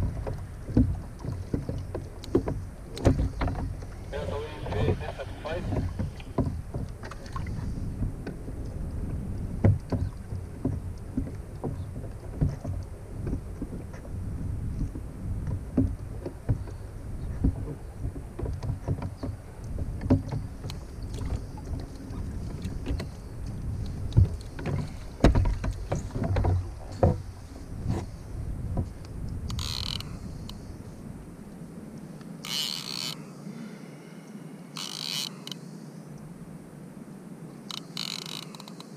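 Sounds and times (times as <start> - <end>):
water sloshing around kayak: 0.0 - 38.9
wind on microphone: 2.6 - 31.9
rod and reel knocks and clicks: 28.8 - 30.6, 32.4 - 33.2, 34.8 - 35.6, 37.7 - 38.9.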